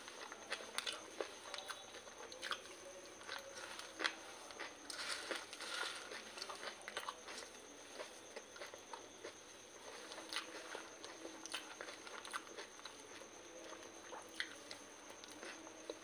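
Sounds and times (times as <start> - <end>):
crunchy chewing of puffed rice: 0.0 - 16.0
fingers stirring rice in steel bowl: 3.4 - 6.7.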